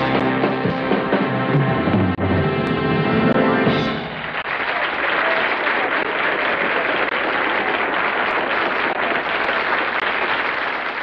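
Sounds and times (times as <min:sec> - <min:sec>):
audience applauding: 0:03.6 - 0:11.0.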